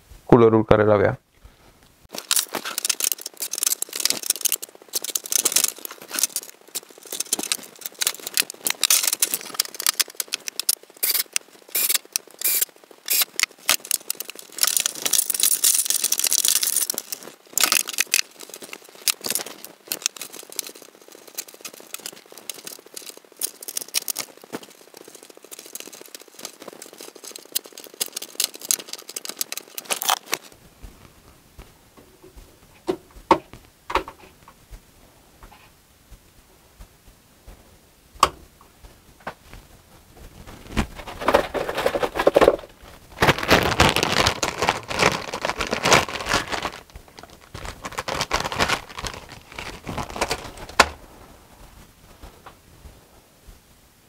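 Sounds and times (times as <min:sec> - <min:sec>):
rustling scrape: 0:02.1 - 0:32.8, 0:38.9 - 0:53.2
cable handling clicks and rustles: 0:02.1 - 0:34.6, 0:40.3 - 0:51.0.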